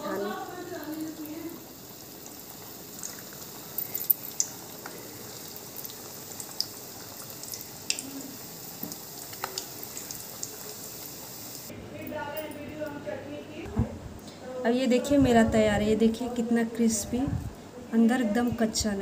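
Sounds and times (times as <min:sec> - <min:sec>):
dough deep-frying in hot oil: 0:00.0 - 0:11.7
oil popping and crackling: 0:00.5 - 0:11.7.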